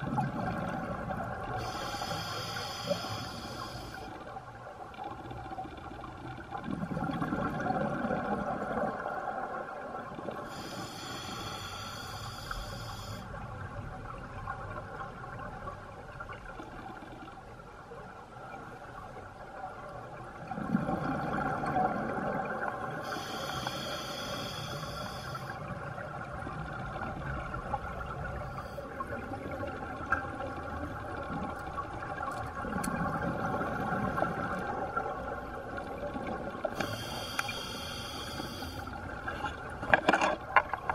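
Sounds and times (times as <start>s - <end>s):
exhaled bubbles gurgling: 0.0s - 3.8s, 6.1s - 10.8s, 20.1s - 37.8s
steady underwater hum: 0.0s - 40.9s
regulator inhale hissing: 1.6s - 4.2s, 10.5s - 13.3s, 23.0s - 25.6s, 36.7s - 39.0s.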